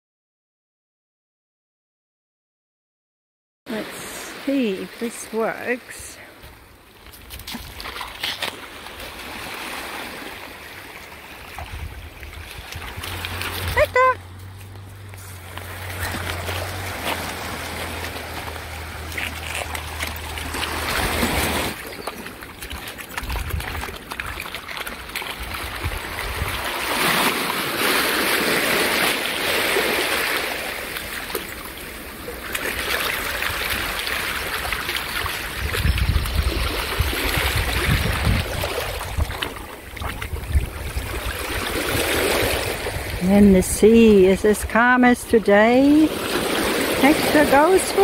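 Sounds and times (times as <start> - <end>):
waves washing over pebbles: 3.7 - 6.2, 7.1 - 48.0
dog splashing in water: 12.4 - 31.6.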